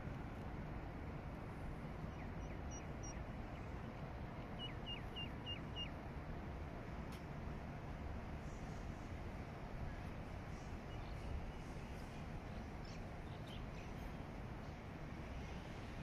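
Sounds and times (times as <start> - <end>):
low city rumble and wind: 0.0 - 16.0
small bird chirping: 4.6 - 5.9.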